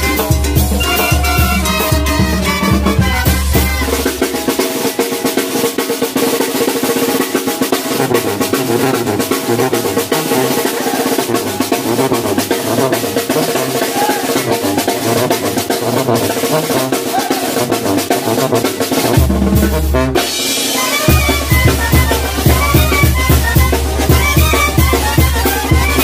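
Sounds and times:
bass drum beats: 0.0 - 4.8, 8.0 - 20.4
pitched music: 0.0 - 5.2, 8.0 - 26.0
snare drum rolls: 0.0 - 26.0.

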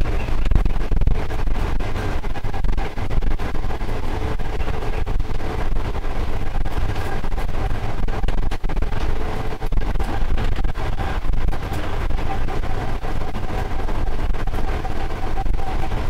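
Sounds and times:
locomotive engine and rail rumble: 0.0 - 16.0
thin steady whine: 0.0 - 16.0.

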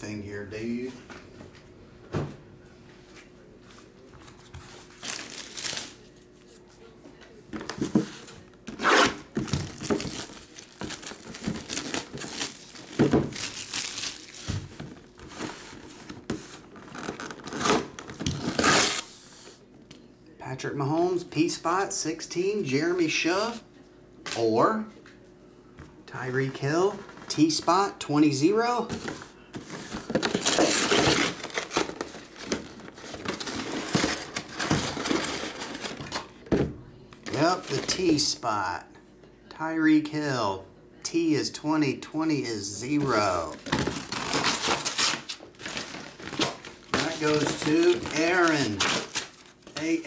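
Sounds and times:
packaging crinkling: 5.0 - 6.0, 9.4 - 19.0, 43.5 - 50.0
cardboard rustling and scraping: 7.6 - 19.1, 43.6 - 49.6
cardboard box tearing: 16.9 - 19.0, 30.2 - 36.0, 43.7 - 49.5.

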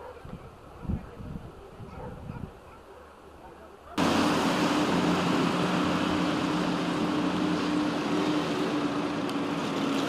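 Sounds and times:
road noise: 3.6 - 10.0
vehicle engine drone: 4.0 - 10.0.

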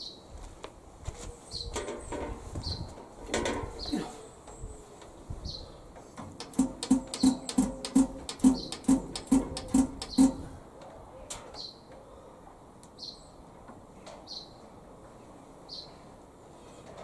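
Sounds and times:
bird chirping: 6.4 - 10.5.

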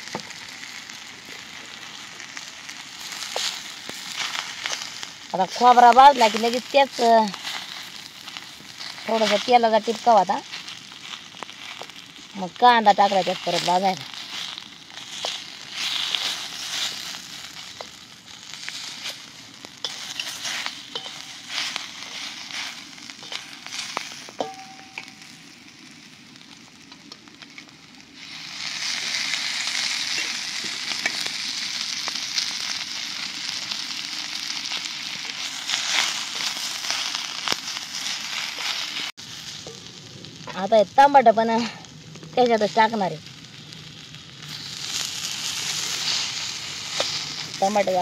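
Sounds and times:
onions sizzling in oil: 0.0 - 48.0
wooden spatula scraping: 13.0 - 18.0, 18.6 - 24.6.

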